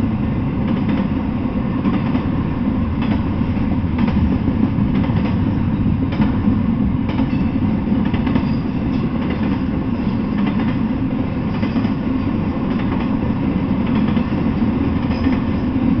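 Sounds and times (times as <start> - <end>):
freight train rumbling past: 0.0 - 16.0
train wheel clicks: 0.6 - 1.2, 1.8 - 2.4, 3.0 - 6.5, 7.1 - 16.0.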